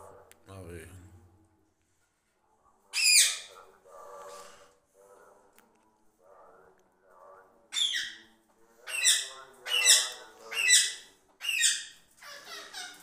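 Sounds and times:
parrot loud squawks: 2.9 - 3.6, 7.7 - 8.2, 8.8 - 13.0.

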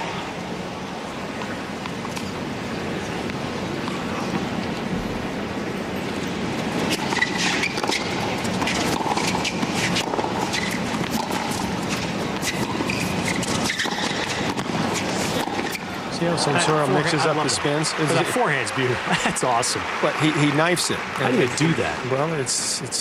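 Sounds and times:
tennis ball bouncing on court: 6.8 - 15.9
racket strings hitting ball: 6.9 - 15.8.

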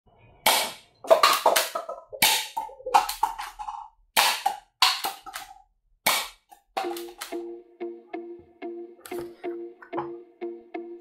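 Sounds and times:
toy pistol shots snapping: 4.2 - 5.5, 6.1 - 7.3.

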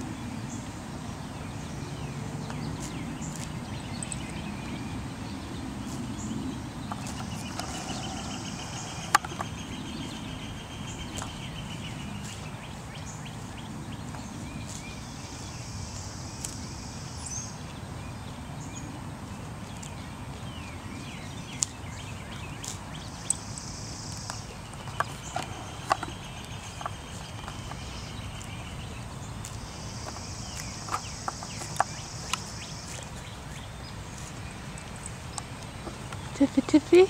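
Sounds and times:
pony chewing: 2.4 - 4.9, 5.7 - 13.1, 21.3 - 37.0
pony tearing grass: 2.6 - 3.7, 5.7 - 13.1, 13.7 - 16.8, 21.4 - 36.3.

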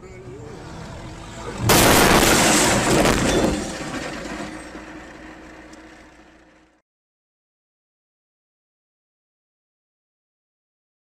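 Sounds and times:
car crash impact: 1.6 - 5.0
glass breaking: 1.7 - 4.9.

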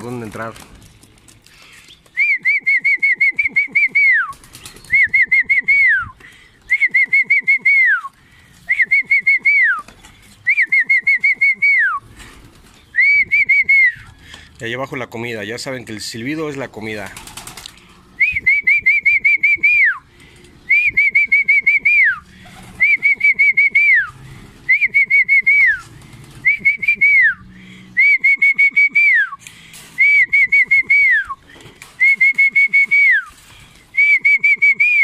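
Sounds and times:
trilled whistle: 18.2 - 20.0, 20.7 - 22.2, 22.8 - 24.1, 24.7 - 25.9, 30.0 - 31.4, 32.0 - 33.4, 34.0 - 35.0.

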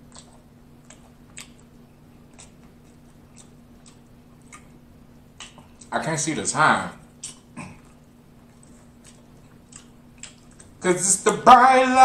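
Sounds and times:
chewing fried food: 0.0 - 6.0, 6.9 - 11.2.

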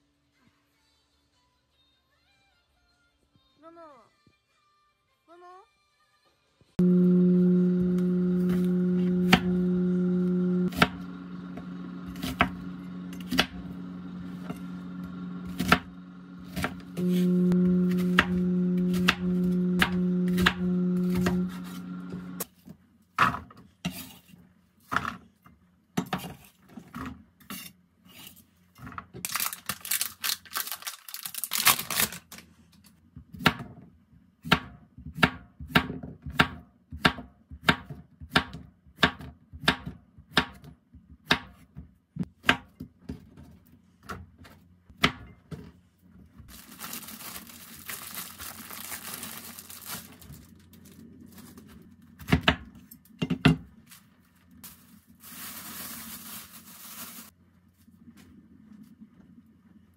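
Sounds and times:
steady low tone: 6.8 - 22.4
knife chopping on wooden board: 8.5 - 9.6, 15.4 - 15.9, 17.9 - 21.8.

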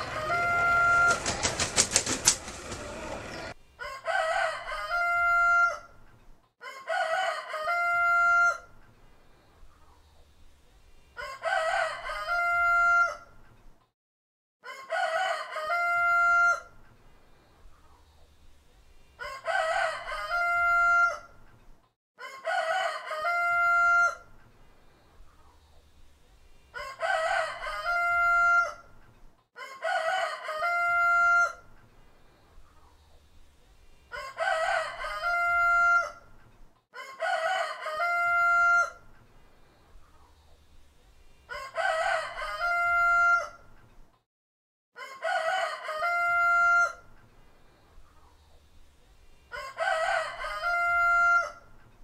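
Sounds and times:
rooster crowing: 0.0 - 1.6, 2.8 - 6.0, 6.6 - 8.7, 11.2 - 13.4, 14.6 - 16.8, 19.2 - 21.4, 22.2 - 24.3, 26.8 - 29.0, 29.6 - 31.7, 34.1 - 36.3, 37.0 - 39.1, 41.5 - 43.7, 45.0 - 47.1, 49.5 - 51.8
wings flapping: 0.0 - 3.5.

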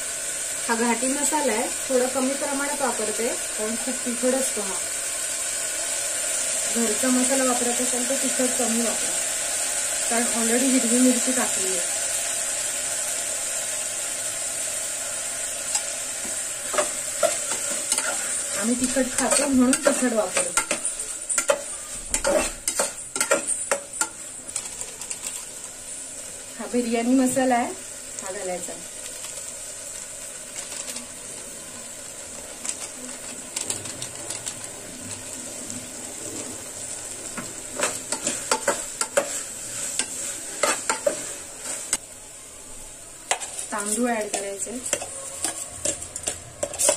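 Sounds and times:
masala sizzling in hot oil: 0.0 - 46.9
utensil scraping and clinking pot: 15.7 - 25.4, 37.4 - 42.0, 43.3 - 46.9.

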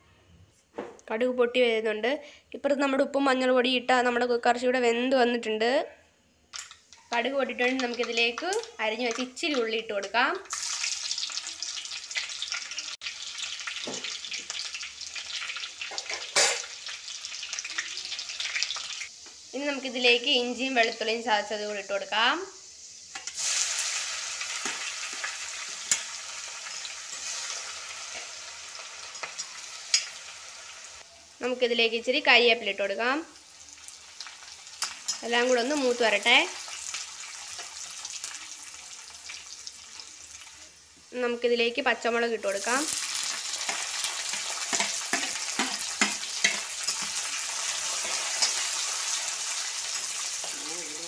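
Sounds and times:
food sizzling in hot oil: 6.5 - 51.0
stirring in pan: 43.0 - 50.6
metal spoon stirring: 43.7 - 47.4.

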